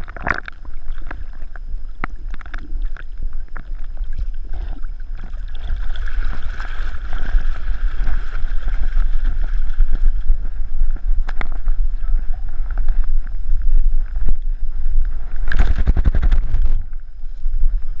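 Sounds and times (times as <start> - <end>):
water sloshing: 0.0 - 14.4
dog paddling: 4.1 - 13.3
rustling and clatter: 15.0 - 17.1.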